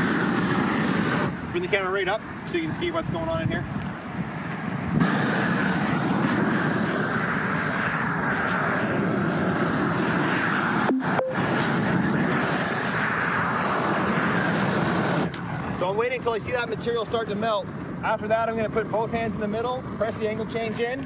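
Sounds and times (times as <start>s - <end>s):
roofing torch flame burning: 0.0s - 21.0s.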